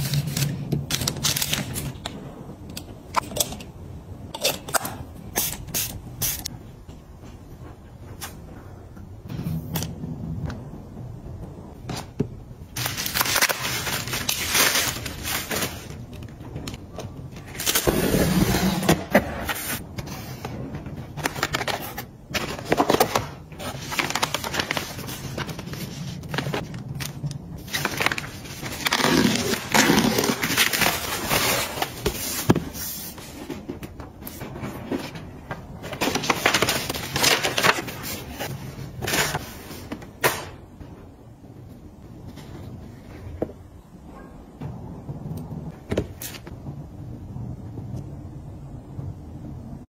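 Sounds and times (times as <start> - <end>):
cardboard and paper rustling: 0.0 - 2.0, 12.7 - 40.4.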